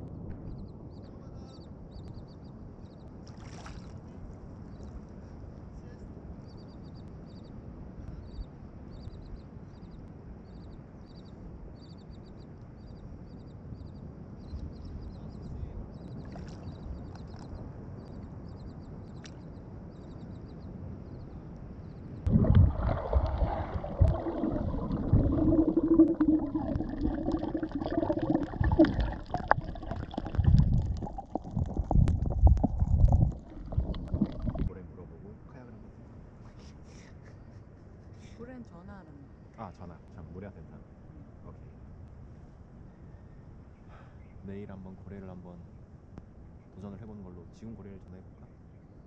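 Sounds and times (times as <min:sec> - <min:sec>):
water lapping: 0:03.2 - 0:04.2, 0:22.3 - 0:34.8.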